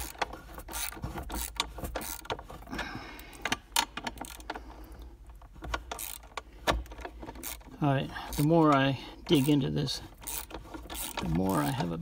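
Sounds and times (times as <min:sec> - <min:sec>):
socket ratchet clicking: 0:00.0 - 0:02.4, 0:05.3 - 0:07.7, 0:10.2 - 0:11.8.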